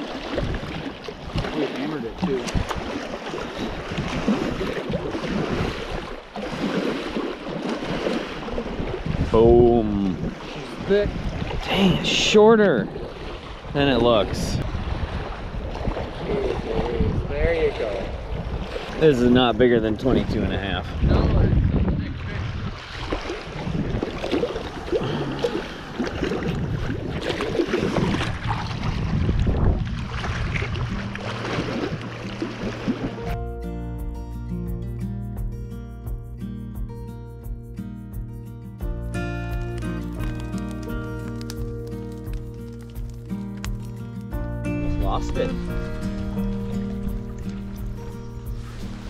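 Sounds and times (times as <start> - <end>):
wind on microphone: 0.0 - 6.7, 7.9 - 33.4, 44.7 - 49.0
water lapping against rocks: 0.0 - 33.4, 45.2 - 49.0.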